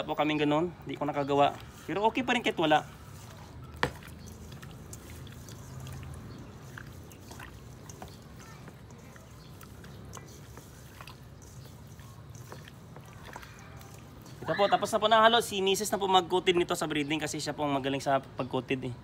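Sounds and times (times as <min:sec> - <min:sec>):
hands squishing raw chicken: 0:01.5 - 0:15.6.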